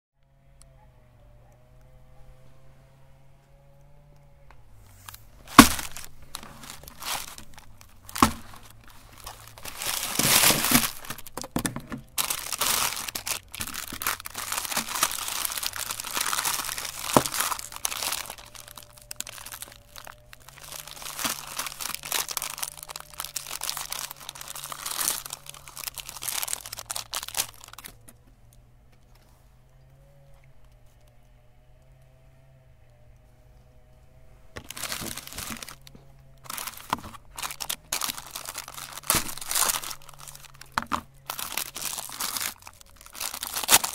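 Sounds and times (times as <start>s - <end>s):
plastic wrappers crinkling and tearing: 4.9s - 28.2s, 34.6s - 43.9s.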